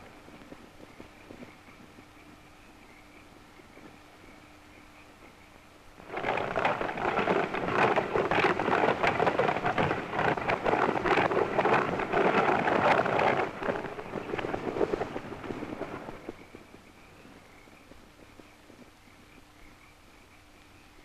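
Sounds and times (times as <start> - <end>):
galloping hooves: 0.0 - 2.5, 6.0 - 19.7
rattling coach wheels: 6.0 - 16.7.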